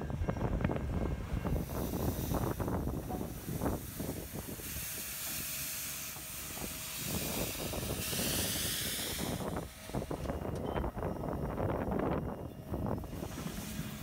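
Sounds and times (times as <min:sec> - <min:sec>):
steam locomotive hissing steam: 0:01.3 - 0:10.2, 0:13.0 - 0:14.0.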